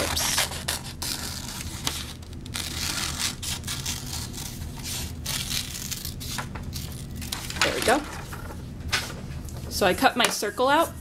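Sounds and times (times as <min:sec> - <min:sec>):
scissors snipping paper: 0:00.0 - 0:08.0
low steady hum: 0:00.0 - 0:11.0.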